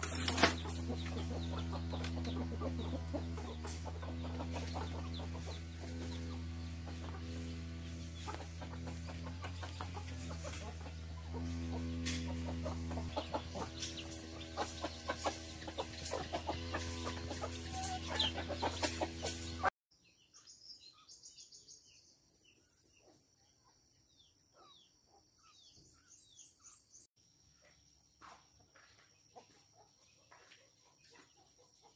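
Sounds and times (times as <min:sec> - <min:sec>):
hens clucking: 0:00.0 - 0:19.7
steady low hum: 0:00.0 - 0:19.7
small birds chirping: 0:00.1 - 0:31.9.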